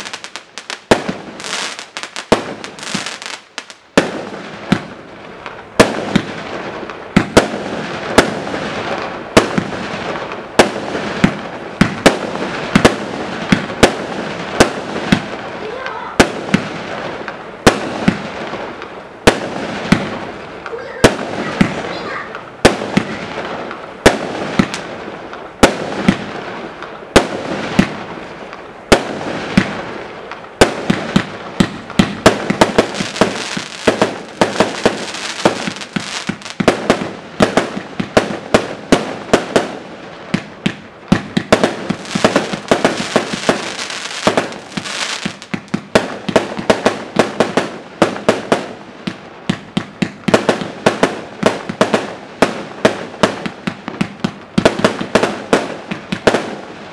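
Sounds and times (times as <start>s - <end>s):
firework crackling: 0.0s - 56.9s
firework cake bangs: 30.6s - 56.7s.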